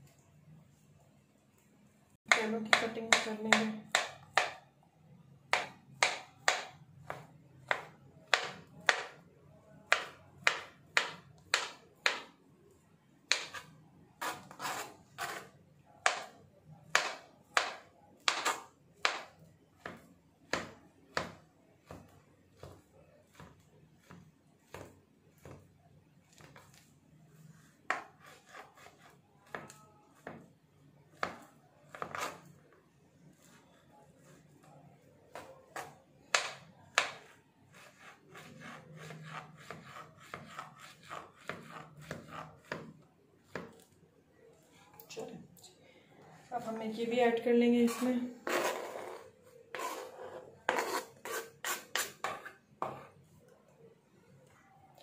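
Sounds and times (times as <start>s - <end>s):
knife tapping cutting board: 9.9s - 12.3s.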